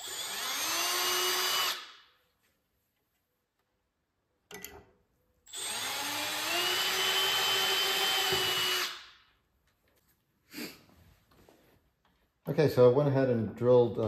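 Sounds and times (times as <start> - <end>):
cordless drill whining: 0.0 - 1.9, 5.5 - 9.1.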